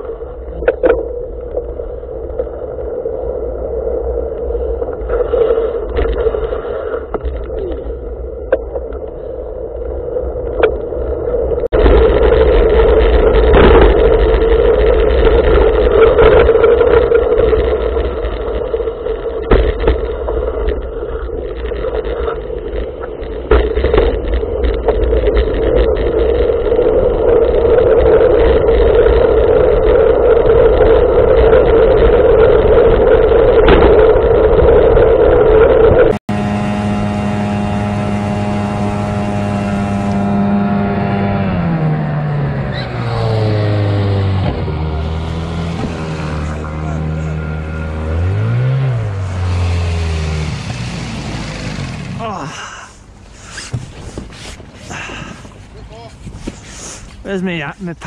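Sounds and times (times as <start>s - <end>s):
hum: 0.0s - 58.0s
wind and road rush: 0.0s - 58.0s
outboard motor running: 11.7s - 57.3s.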